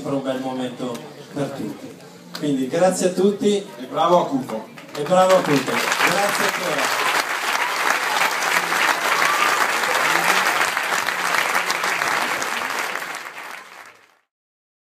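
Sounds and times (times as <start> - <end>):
audience applauding: 4.8 - 14.3.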